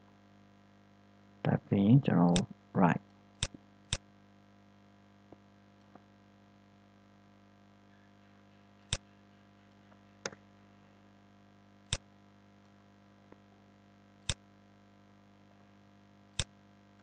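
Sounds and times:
low mains hum: 0.0 - 17.0
computer mouse clicks: 8.9 - 9.1.

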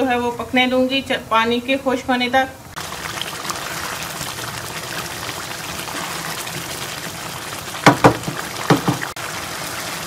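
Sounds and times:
rice bubbling at a boil: 2.7 - 10.0
sharp knocks: 7.8 - 9.1.

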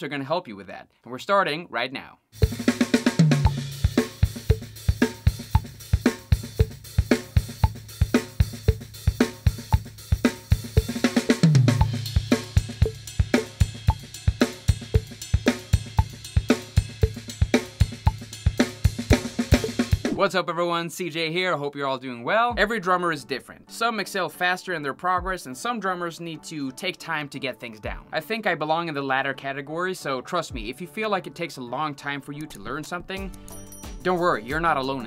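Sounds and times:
kick drum: 2.4 - 2.6, 4.5 - 11.0, 17.0 - 17.3
snare backbeat: 2.4 - 20.2
fast hi-hat pattern: 2.4 - 20.3.

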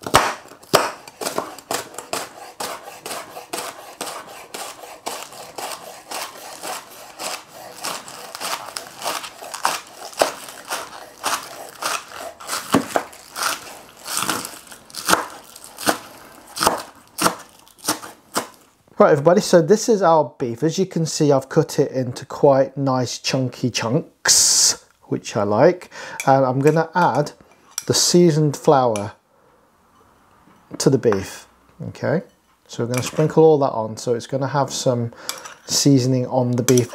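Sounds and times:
knife chopping on wooden board: 0.0 - 18.6.

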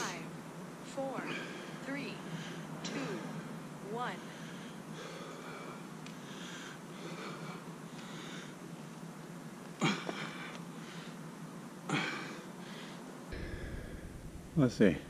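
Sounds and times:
man breathing hard: 1.2 - 3.6, 4.2 - 8.6, 9.8 - 11.3, 11.9 - 14.5
forceful exhales: 13.3 - 14.4.

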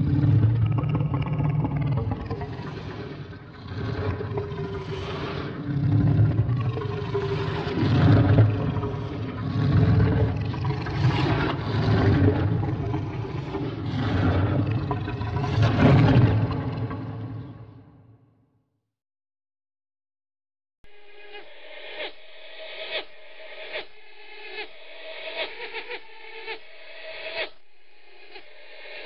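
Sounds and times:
deep monster growls: 0.0 - 18.0.

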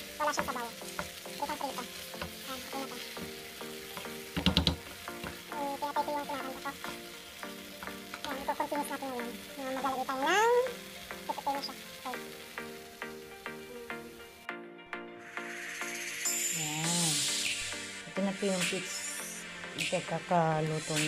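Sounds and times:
sauce sizzling in a frying pan: 0.0 - 14.5, 15.2 - 21.0.

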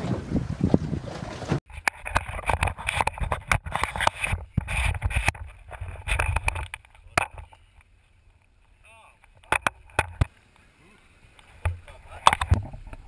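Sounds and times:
wind noise on microphone: 0.0 - 7.5, 11.6 - 13.0
knocks and rattles on boat: 11.6 - 13.0.

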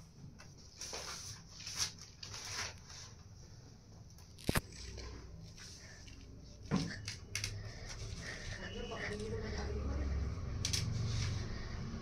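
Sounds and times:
faint rustling and handling: 0.4 - 9.8.

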